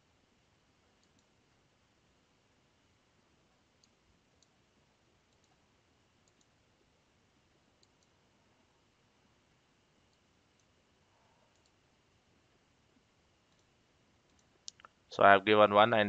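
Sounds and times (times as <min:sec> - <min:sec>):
low steady hiss: 0:00.0 - 0:16.0
computer mouse clicks: 0:01.0 - 0:01.4, 0:03.8 - 0:04.6, 0:05.3 - 0:05.6, 0:06.2 - 0:06.6, 0:07.8 - 0:08.2, 0:10.1 - 0:10.8, 0:11.4 - 0:11.8, 0:13.5 - 0:15.0.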